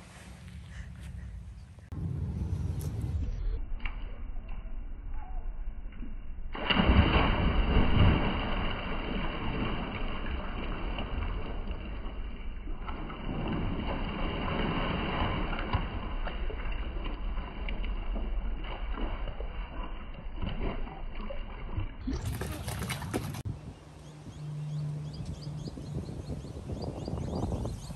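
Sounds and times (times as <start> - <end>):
wind on microphone: 22.2 - 27.9.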